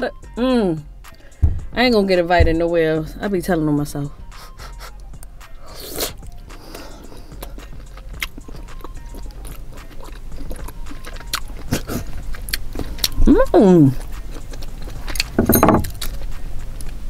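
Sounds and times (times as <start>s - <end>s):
chewing: 5.7s - 17.0s.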